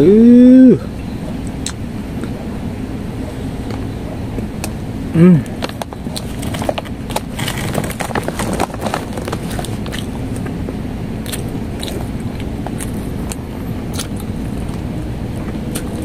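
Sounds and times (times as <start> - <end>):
person chewing with wet smacks: 11.2 - 16.0.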